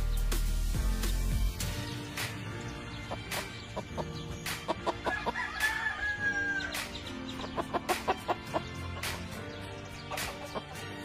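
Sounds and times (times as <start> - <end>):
chickens clucking: 3.0 - 11.0
rooster crowing: 5.1 - 6.8.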